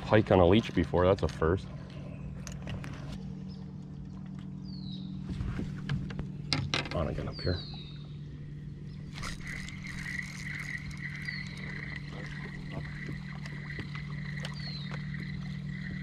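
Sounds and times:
electric trolling motor hum: 0.0s - 16.0s
fishing reel cranking whir: 8.9s - 16.0s.

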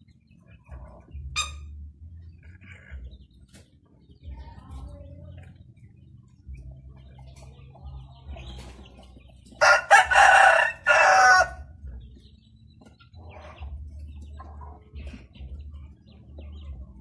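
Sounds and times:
rooster crowing: 9.6s - 11.6s.

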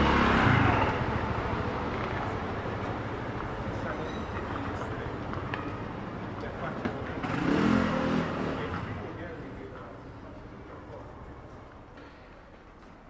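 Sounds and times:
motor scooter passing: 0.0s - 9.6s
city street noise: 0.0s - 13.0s.

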